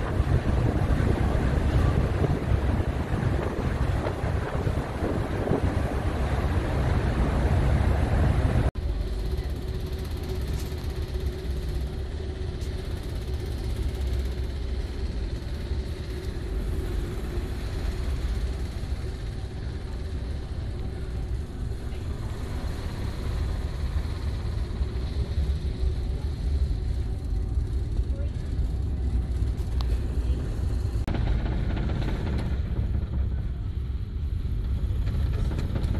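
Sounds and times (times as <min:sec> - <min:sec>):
wind buffeting microphone: 0:00.0 - 0:08.8
ship machinery drone: 0:00.0 - 0:35.9.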